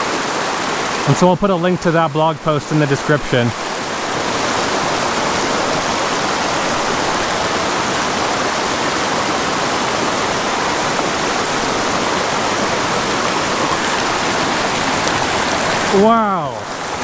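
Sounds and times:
creek rushing over boulders: 0.0s - 17.0s.

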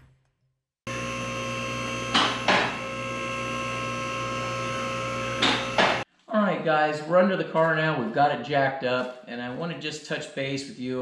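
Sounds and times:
hydraulic pump running: 0.9s - 6.1s.

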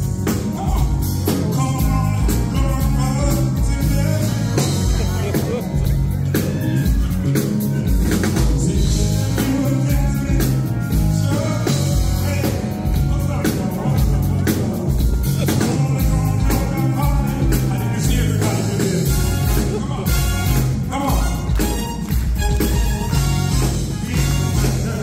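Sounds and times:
live band music: 0.0s - 25.0s
man singing into microphone: 0.3s - 5.8s, 8.2s - 21.6s, 23.9s - 25.0s.

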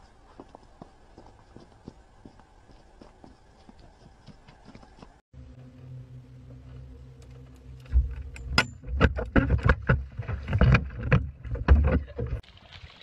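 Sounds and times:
boat hum: 4.4s - 12.4s.

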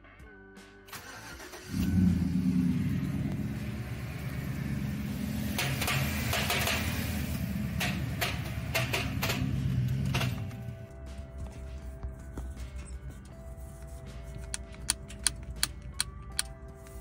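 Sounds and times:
car engine starting and idling: 0.9s - 11.0s.

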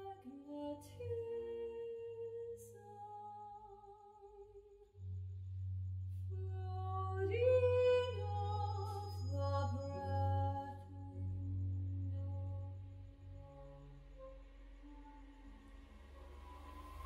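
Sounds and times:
woman singing: 0.0s - 4.7s, 6.3s - 15.8s.

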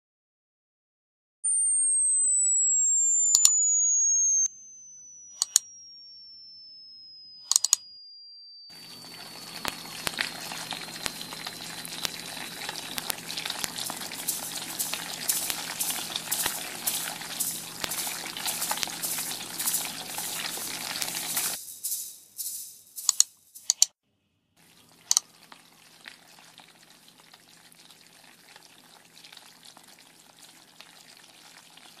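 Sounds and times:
high whistle sliding down in pitch: 1.4s - 12.5s
sharp clicks: 3.2s - 4.5s, 5.3s - 5.7s, 7.4s - 7.8s, 11.0s - 21.6s, 22.5s - 23.9s
dense crackling and clicking noise: 8.8s - 21.6s.

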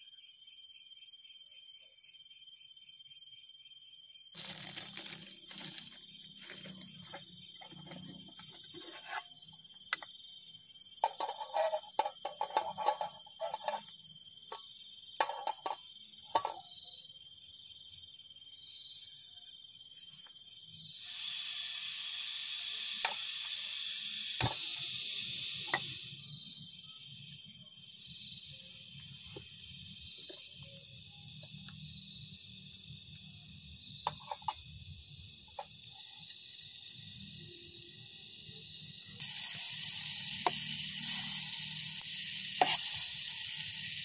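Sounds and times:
crickets chirping: 0.0s - 44.0s
gas hissing: 21.0s - 26.3s, 35.4s - 44.0s.

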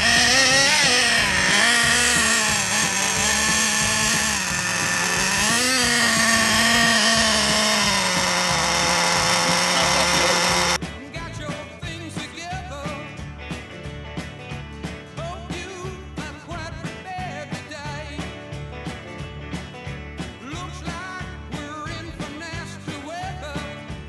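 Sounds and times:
model motor high whine: 0.0s - 10.8s.

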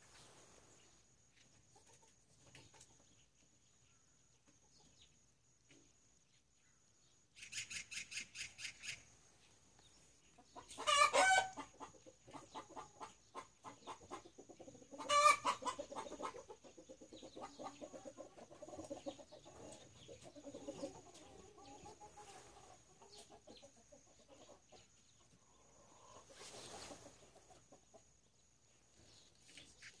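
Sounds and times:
chickens clucking: 0.1s - 6.0s, 9.8s - 30.0s
loud chicken calls: 10.4s - 24.6s.

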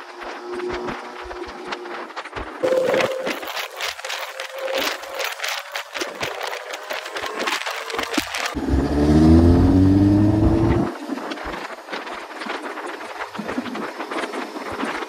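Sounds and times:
motorcycle engine accelerating: 6.6s - 11.0s.

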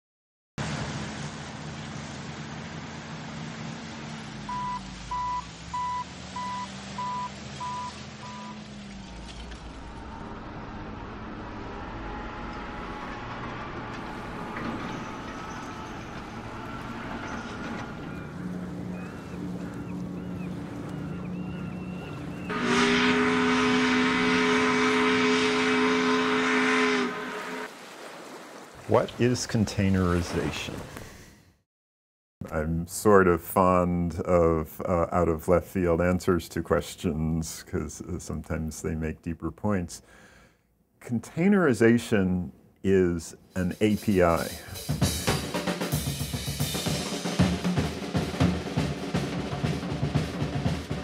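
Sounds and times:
low machine drone: 0.6s - 27.7s
ship's engines humming: 0.6s - 31.0s, 42.8s - 51.0s
ship's horn blast: 4.3s - 27.7s
warning beeper beeping: 4.5s - 8.6s
faint high calls: 13.9s - 22.7s.

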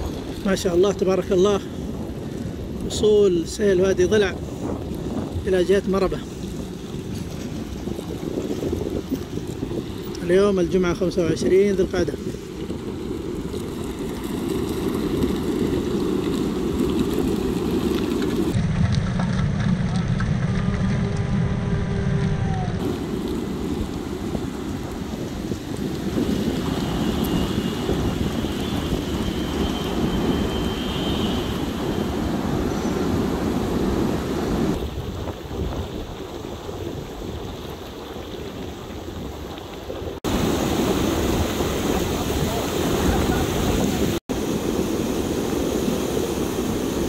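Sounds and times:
wind buffeting microphone: 0.0s - 47.0s
flood water rushing over stones: 2.2s - 18.9s, 22.5s - 47.0s.

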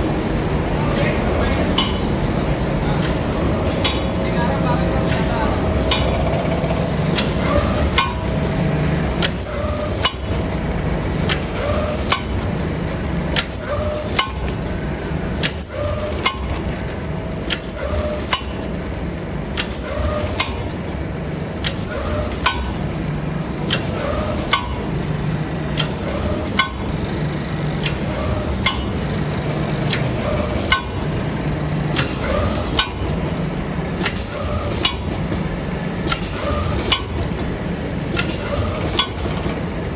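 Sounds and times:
machine hum: 0.0s - 39.9s
packing machine clicks and clacks: 0.8s - 4.2s, 4.9s - 39.9s.

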